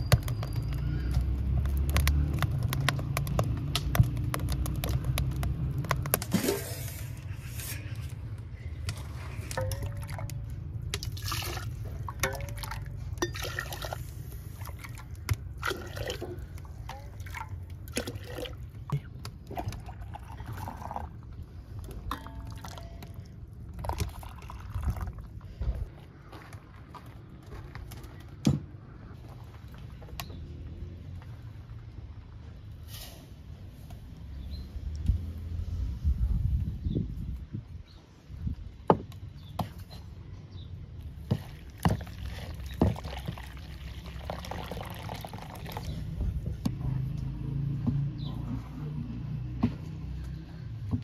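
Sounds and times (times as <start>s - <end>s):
water dripping: 9.5s - 21.1s, 21.8s - 25.4s
low rumble with small clicks: 34.8s - 35.4s
water pouring into a pot: 41.4s - 46.0s.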